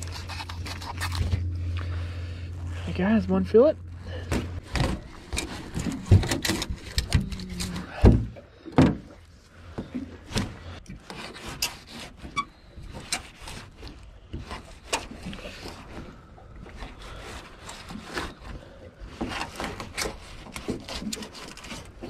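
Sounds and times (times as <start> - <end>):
knife scraping and slicing fish: 0.0 - 1.8, 11.0 - 15.7, 19.3 - 22.0
fish being handled: 0.0 - 2.8.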